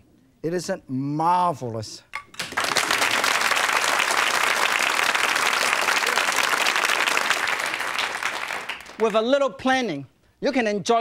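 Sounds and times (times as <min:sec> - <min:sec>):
audience applauding: 0:02.4 - 0:09.3.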